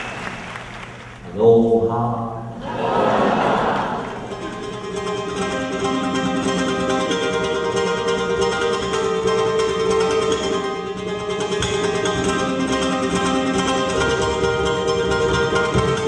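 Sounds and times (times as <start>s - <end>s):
fast ukulele strumming: 4.1s - 16.0s.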